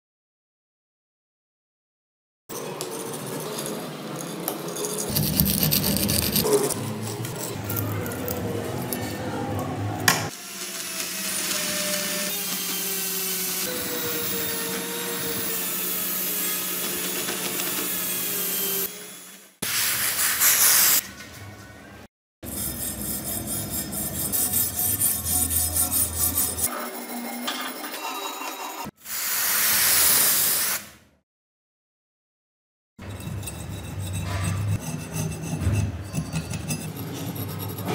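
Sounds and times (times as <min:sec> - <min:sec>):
rotary wire brush on steel: 0:02.9 - 0:09.1, 0:22.4 - 0:28.8, 0:33.0 - 0:37.9
rubbing strokes on metal: 0:22.4 - 0:27.9
loud hiss: 0:29.0 - 0:31.0.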